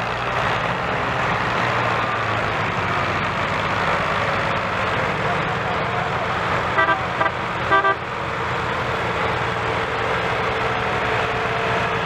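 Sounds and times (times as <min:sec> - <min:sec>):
tractor diesel engines under load: 0:00.0 - 0:12.0
vehicle horn tooting: 0:06.8 - 0:08.0.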